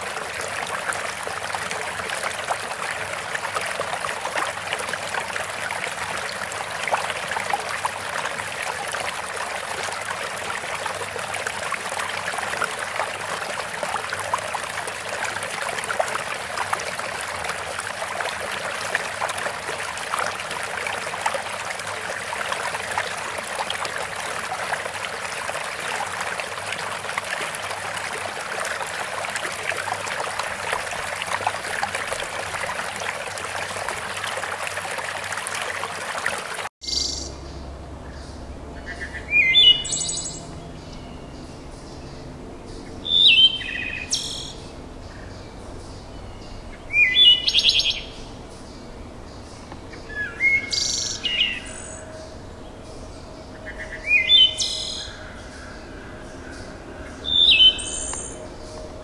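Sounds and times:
running water babbling: 0:00.0 - 0:36.7.

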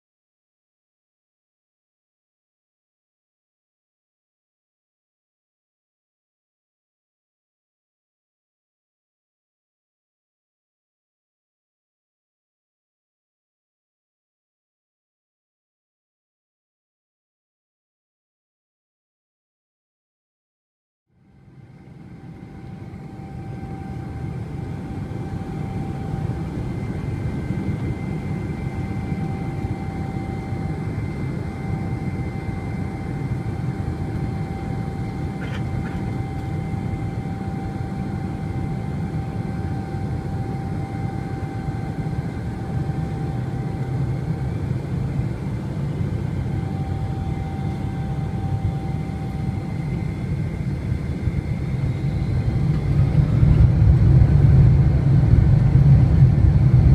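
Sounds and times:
jet engine rumble: 0:21.2 - 0:56.9
thin steady whine: 0:21.2 - 0:56.9.

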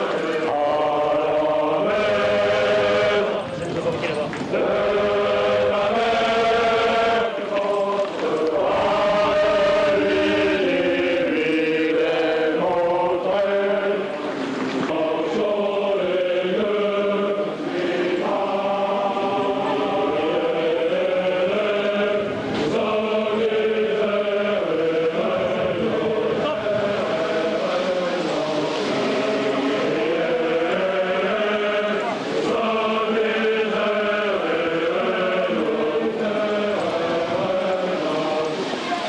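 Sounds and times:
men singing in unison: 0:00.0 - 0:39.0.

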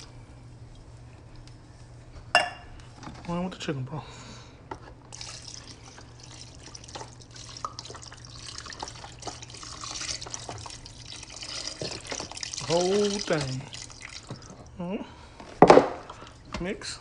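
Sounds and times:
liquid pouring and splashing: 0:05.1 - 0:14.8.

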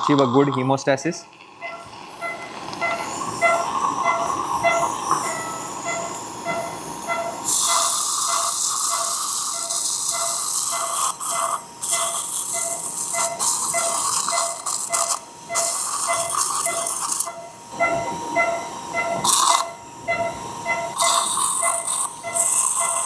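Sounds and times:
repeating electronic beep: 0:01.6 - 0:23.0
surgical suction hiss: 0:01.9 - 0:17.3, 0:19.2 - 0:19.8, 0:20.9 - 0:23.0.

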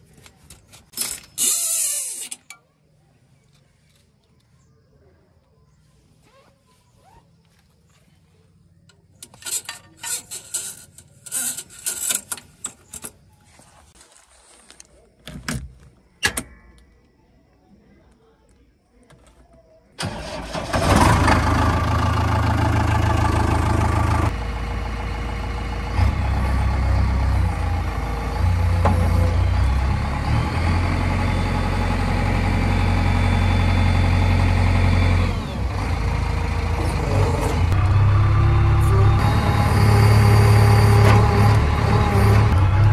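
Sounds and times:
diesel engine running: 0:20.0 - 0:42.9.

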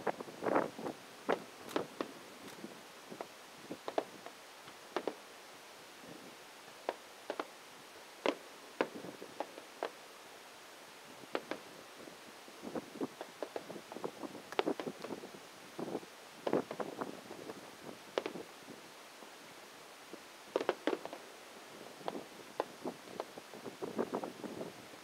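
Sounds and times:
fireworks bursting: 0:00.0 - 0:05.3, 0:06.7 - 0:07.6, 0:08.2 - 0:10.0, 0:11.3 - 0:11.8, 0:12.6 - 0:18.5, 0:20.5 - 0:21.3, 0:21.9 - 0:24.2.

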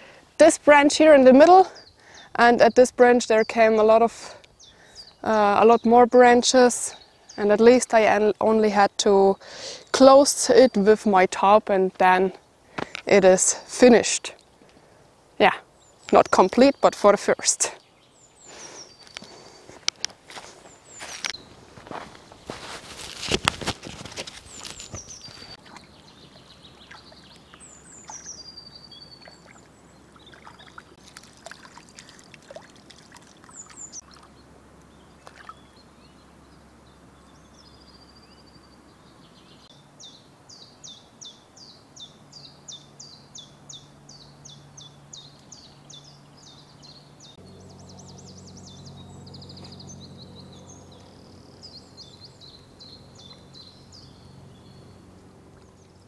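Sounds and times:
birds calling: 0:01.0 - 0:08.4, 0:12.4 - 0:56.0
water splashes and drips: 0:29.2 - 0:34.3, 0:35.2 - 0:35.6.

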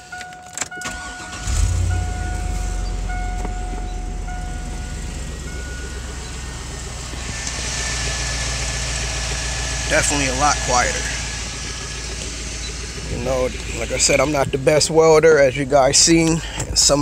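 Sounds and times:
car warning chime dinging: 0:00.0 - 0:07.4
truck engine starting and idling: 0:00.0 - 0:17.0.

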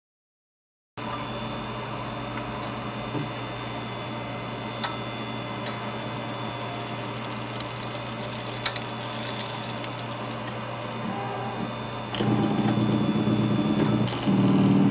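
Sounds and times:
low electrical hum: 0:01.0 - 0:14.0
faint high whine: 0:03.5 - 0:13.6
sharp clicks and crackles: 0:05.6 - 0:10.7.

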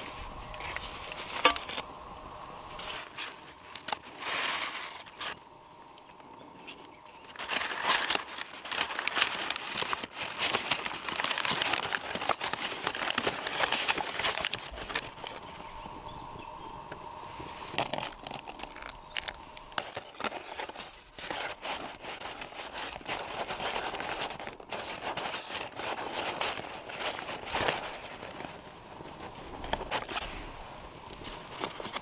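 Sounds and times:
bag lining crinkling: 0:06.6 - 0:15.7, 0:17.4 - 0:32.0.

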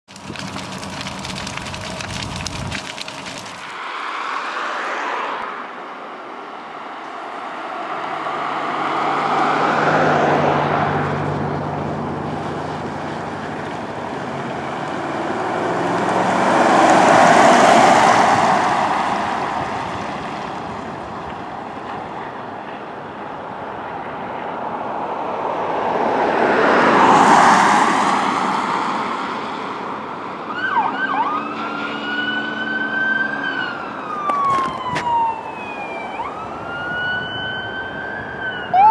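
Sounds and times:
truck engine: 0:00.1 - 0:04.8, 0:06.0 - 0:25.4, 0:26.0 - 0:38.9
electronic siren: 0:30.5 - 0:38.9
siren rising wail: 0:30.5 - 0:38.9.

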